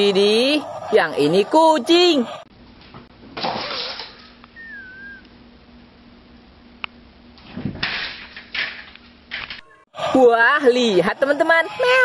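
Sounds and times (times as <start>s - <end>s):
faint steady hum: 0.0s - 7.6s.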